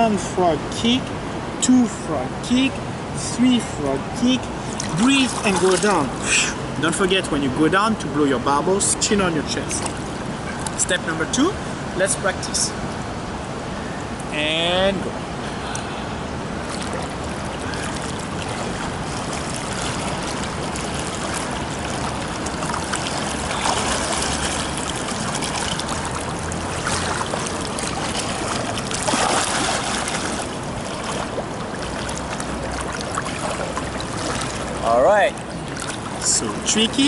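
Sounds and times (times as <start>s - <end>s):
water splashing from swimmer: 4.6s - 6.2s, 16.6s - 37.0s.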